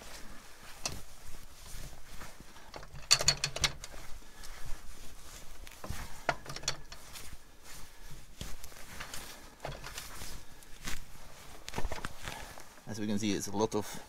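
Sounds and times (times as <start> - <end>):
metallic clicks and knocks: 2.7 - 4.0, 5.8 - 7.1, 9.0 - 10.0.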